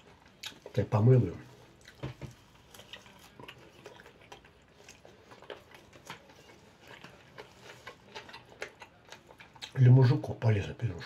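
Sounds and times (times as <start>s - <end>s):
person chewing: 0.0s - 9.8s.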